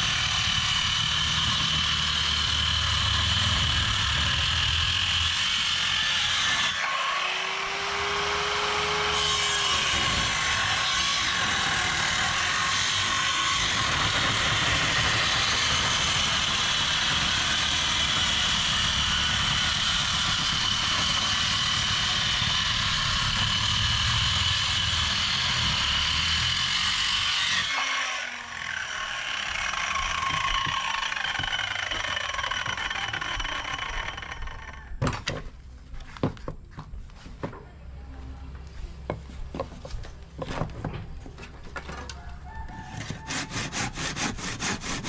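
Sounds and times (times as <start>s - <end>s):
electric power tool whining: 0.0s - 35.0s.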